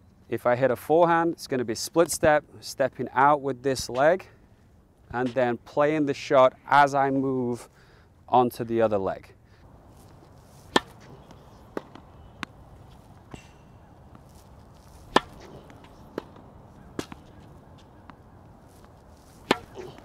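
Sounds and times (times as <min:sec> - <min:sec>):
tennis balls hit and bouncing: 0:09.9 - 0:20.0.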